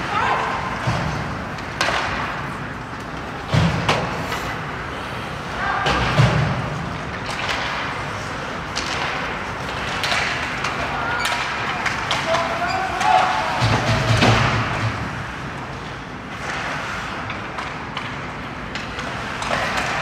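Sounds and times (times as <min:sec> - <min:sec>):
knocks and thuds on hockey boards: 0:03.4 - 0:04.2, 0:13.0 - 0:15.2.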